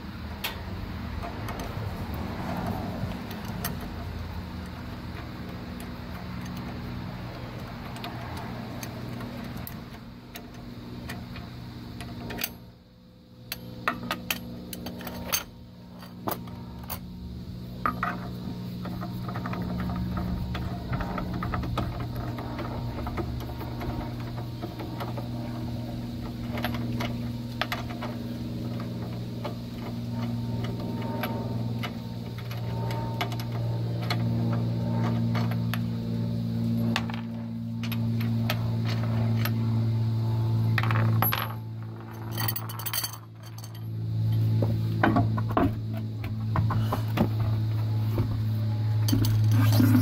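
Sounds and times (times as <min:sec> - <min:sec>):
low humming tones: 0:00.0 - 0:50.0
metal lug nuts clinking: 0:40.8 - 0:43.9.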